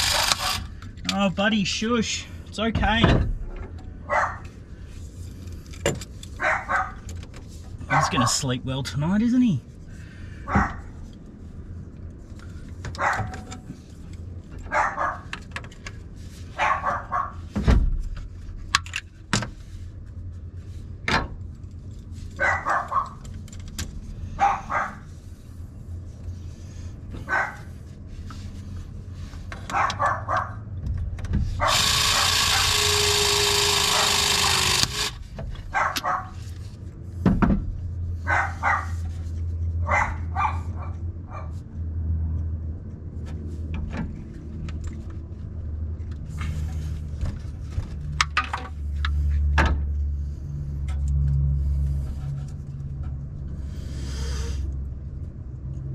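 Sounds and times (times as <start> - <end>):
pipe press gun running: 0.0 - 0.7, 31.6 - 35.2
dog barking: 4.1 - 4.4, 6.4 - 7.0, 7.9 - 8.4, 10.4 - 10.9, 13.0 - 13.4, 14.7 - 15.3, 16.6 - 17.4, 22.4 - 23.2, 24.4 - 25.1, 27.3 - 27.7, 29.7 - 30.6, 33.9 - 34.1, 35.7 - 36.4, 38.3 - 39.0, 39.8 - 41.6.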